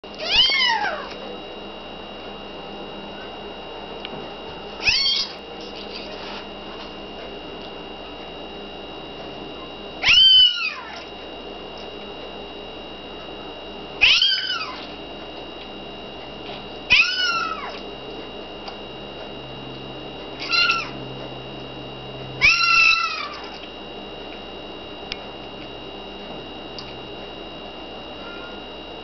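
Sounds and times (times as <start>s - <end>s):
kitten mewing: 0.2s - 1.2s, 4.8s - 6.0s, 14.0s - 14.9s, 16.9s - 17.8s, 20.4s - 21.0s, 22.4s - 23.6s.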